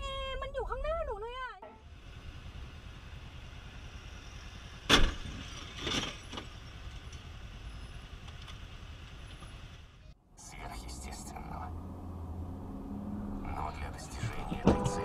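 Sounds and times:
motorcycle engine rumble: 11.9 - 15.0.

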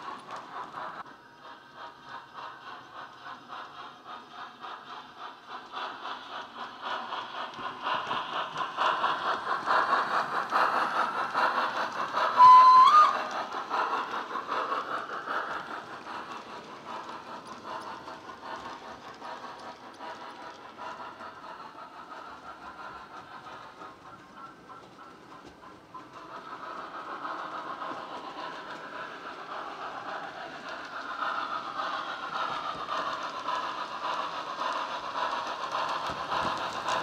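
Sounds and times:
model steam locomotive chuffing: 0.0 - 37.0
steam whistle blast: 12.4 - 13.3.

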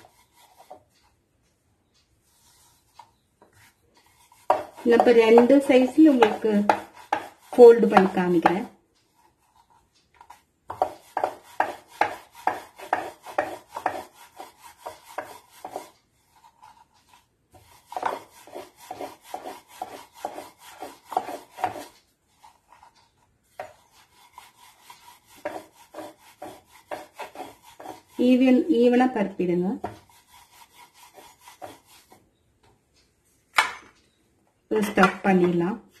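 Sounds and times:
rolling pin rolling dough on board: 0.0 - 32.4.

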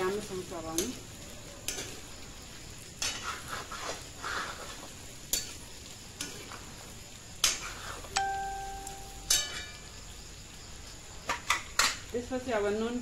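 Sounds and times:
meat sizzling in oil: 0.0 - 13.0
spoon scraping pan: 1.6 - 2.1, 3.0 - 6.8, 7.4 - 8.2.

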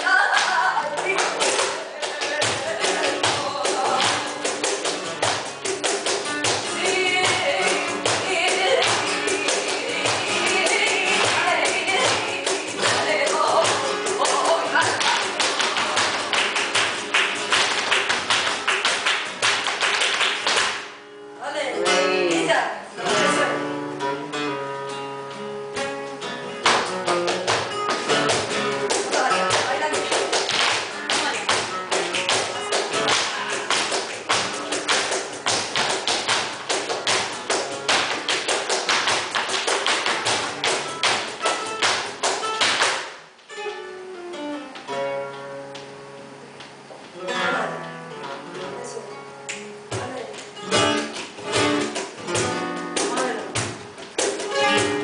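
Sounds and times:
cajon drumming: 0.0 - 21.0, 21.8 - 23.8, 25.7 - 43.4, 49.5 - 55.0
acoustic guitar: 0.0 - 55.0
dancer's footwork strikes: 26.6 - 43.2, 49.9 - 55.0.

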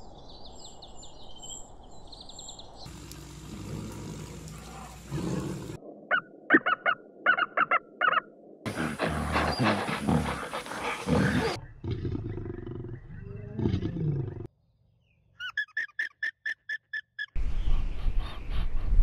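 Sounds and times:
lion growling roar: 2.9 - 5.8, 8.7 - 14.5
harsh animal calls: 6.5 - 14.5.

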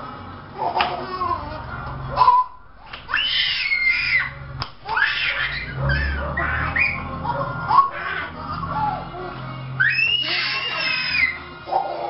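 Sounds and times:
child squealing excitedly: 3.1 - 7.1, 9.8 - 11.4.

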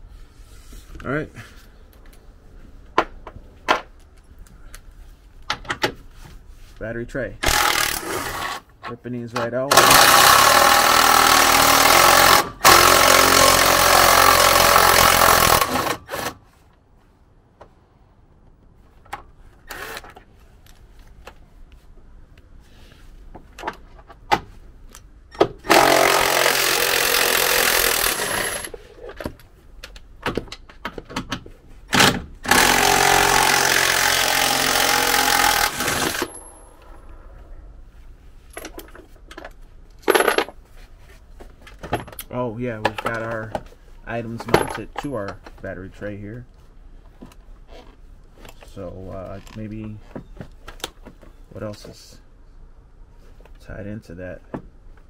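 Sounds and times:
impact driver hammering: 9.7 - 16.4, 25.4 - 28.7, 31.9 - 36.4.

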